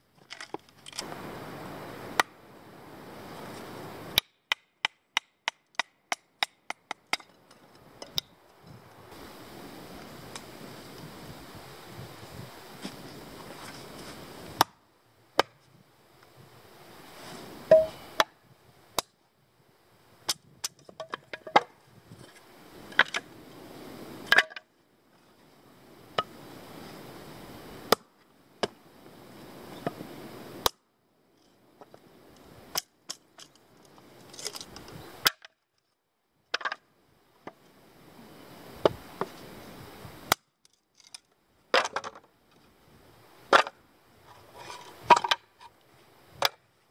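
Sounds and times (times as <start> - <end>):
hatchet splitting wood: 4.2 - 7.3.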